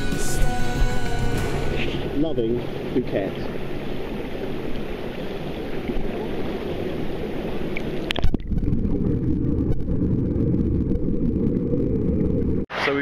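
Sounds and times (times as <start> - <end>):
pool water splashing: 1.7 - 8.3
underwater bubbling: 1.7 - 12.7.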